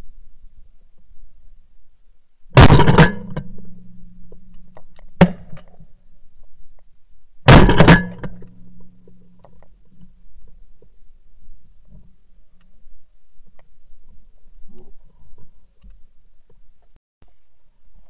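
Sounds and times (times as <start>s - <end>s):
low ringing hum: 0.0s - 18.0s
shotgun shots: 2.6s - 3.4s, 7.5s - 8.2s.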